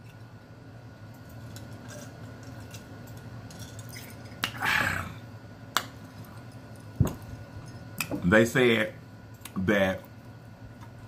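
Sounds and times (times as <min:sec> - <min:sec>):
man gasping: 0:04.6 - 0:05.2.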